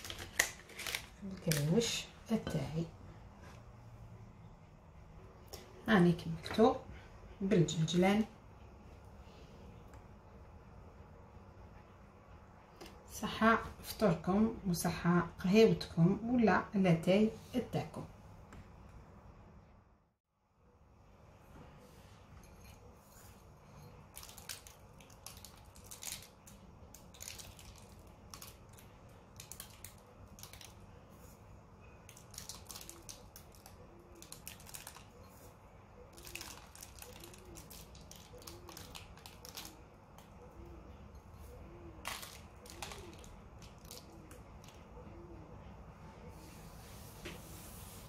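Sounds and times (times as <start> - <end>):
paper crinkling and rustling: 0.0 - 1.7, 36.1 - 39.8, 42.0 - 44.8.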